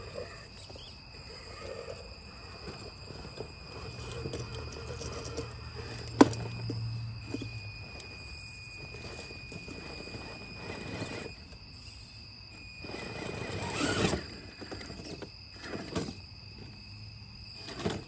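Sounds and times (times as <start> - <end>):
electric motor whirring: 0.0 - 16.7.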